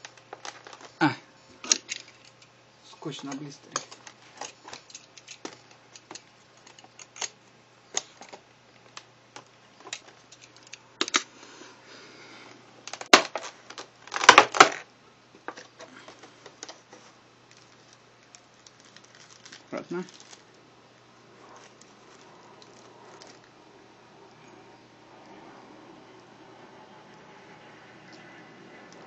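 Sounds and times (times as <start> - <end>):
plastic tray crackling: 12.9 - 14.8, 16.5 - 20.6.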